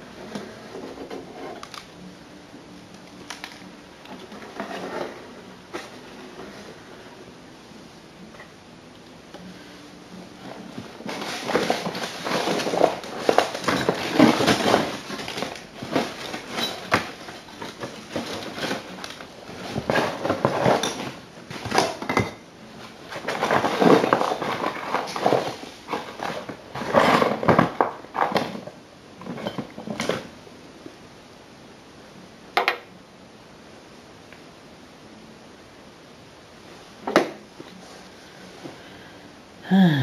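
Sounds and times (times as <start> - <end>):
rummaging through boxes: 3.2 - 7.2, 10.2 - 30.3.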